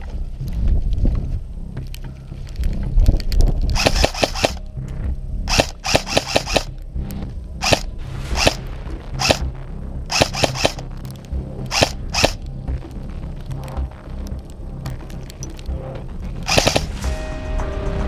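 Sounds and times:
airsoft guns firing: 3.8s - 4.6s, 5.5s - 6.7s, 7.6s - 8.6s, 9.2s - 9.5s, 10.1s - 10.8s, 11.7s - 12.4s, 16.5s - 17.0s.

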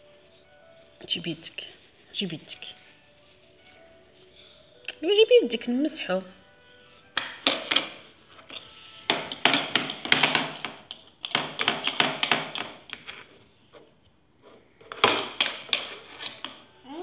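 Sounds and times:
tapping on plastic tray: 7.2s - 8.0s, 9.1s - 13.0s.

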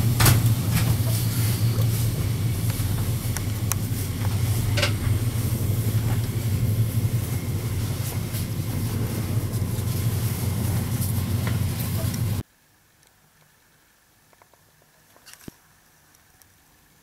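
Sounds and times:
train hum and rumble: 0.0s - 12.4s.

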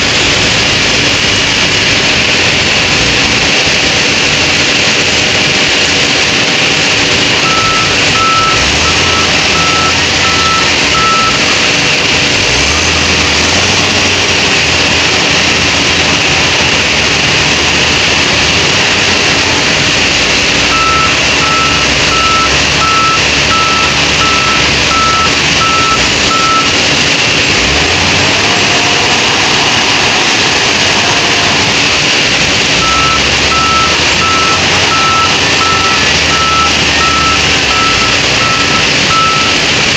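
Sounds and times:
diesel engine revving: 0.0s - 39.9s
reverse alarm beeps: 7.4s - 11.6s, 20.7s - 26.8s, 32.8s - 39.7s.

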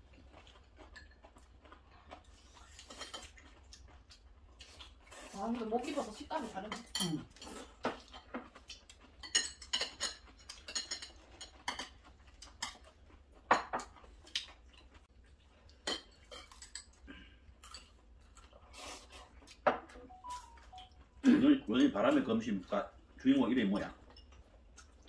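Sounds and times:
cutlery clinking on ceramic bowls: 0.8s - 1.4s, 6.7s - 8.5s, 9.1s - 14.0s, 15.8s - 17.0s.

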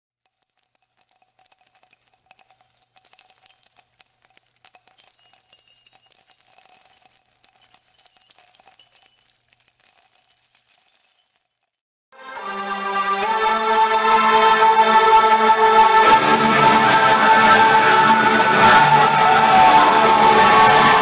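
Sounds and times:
jingle bells shaken: 0.2s - 11.8s.

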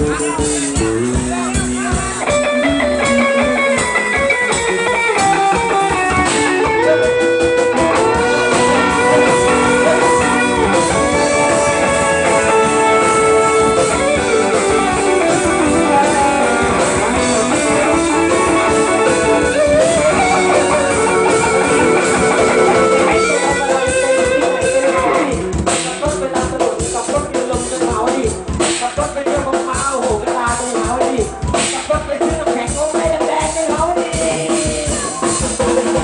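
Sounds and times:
electric guitar bending notes: 0.0s - 26.2s
fast drum beat: 0.0s - 36.0s.

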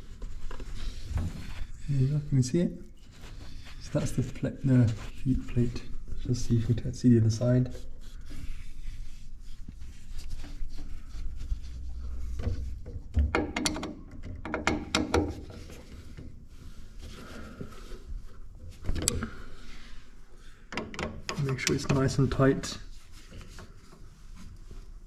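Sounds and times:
knocks and clicks from handling parts: 12.3s - 15.9s, 20.7s - 22.0s.

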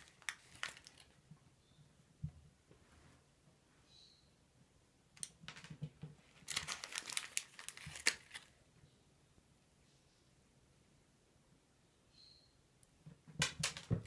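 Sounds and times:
plastic bag crinkling: 0.0s - 1.2s, 6.3s - 8.6s.

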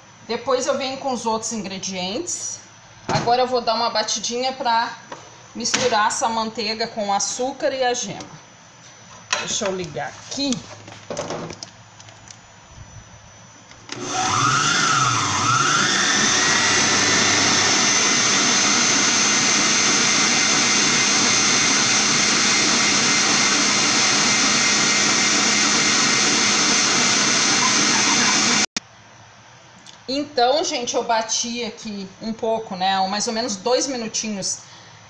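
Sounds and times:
stand mixer running: 13.9s - 28.7s.

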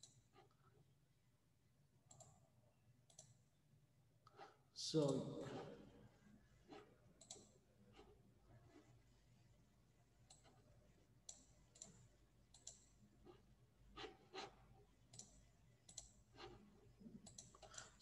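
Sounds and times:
small irregular clicks: 0.0s - 0.8s, 2.0s - 3.4s, 6.7s - 8.9s, 10.2s - 13.4s, 14.0s - 18.0s.

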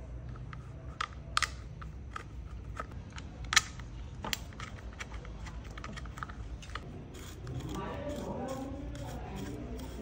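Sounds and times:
steady low hum: 0.0s - 10.0s
plastic parts clicking and tapping: 0.2s - 6.9s.

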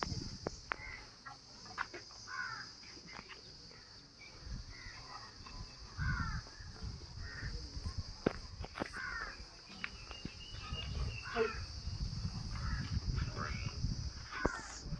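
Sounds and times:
high insect drone: 0.0s - 14.9s
birds harsh calls: 2.0s - 7.7s, 8.8s - 14.9s.

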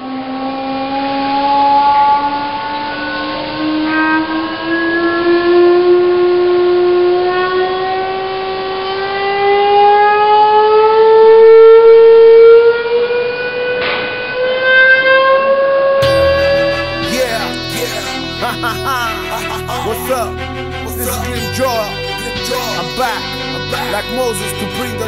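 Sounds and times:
rising sustained loudspeaker tone: 16.0s - 25.0s.

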